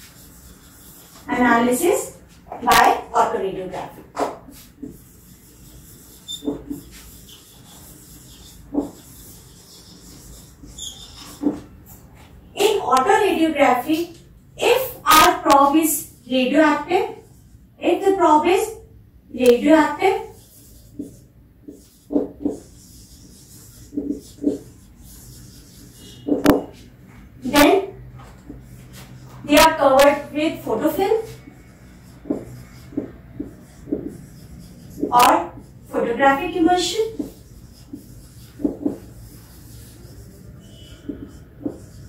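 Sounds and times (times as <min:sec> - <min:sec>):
marker scratching on whiteboard: 0:00.0 - 0:42.0.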